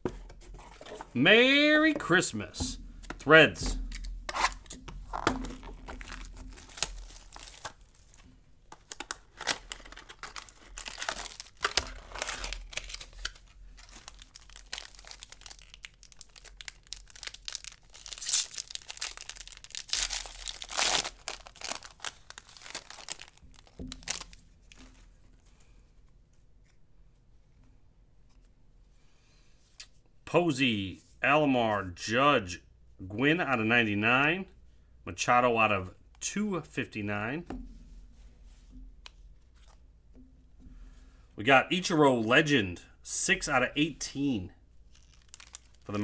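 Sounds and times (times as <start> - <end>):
foil wrappers ripping and crinkling: 4.4 - 8.2, 8.8 - 24.4, 44.9 - 46.0.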